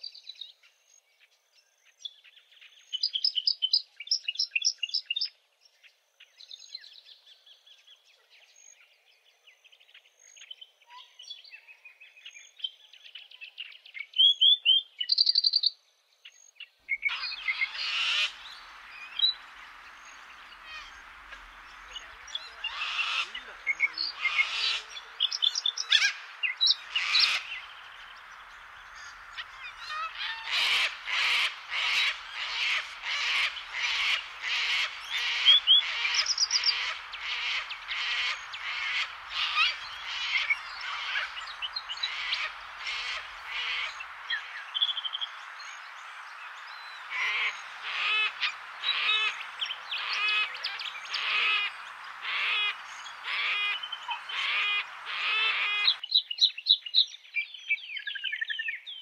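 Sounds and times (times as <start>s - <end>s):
cockatoos calling harshly: 17.0s - 56.0s.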